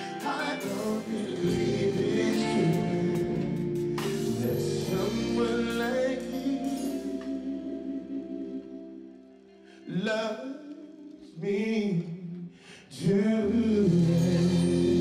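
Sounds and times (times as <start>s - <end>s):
held chords: 0.0s - 10.0s
person singing slow love song: 0.0s - 15.0s.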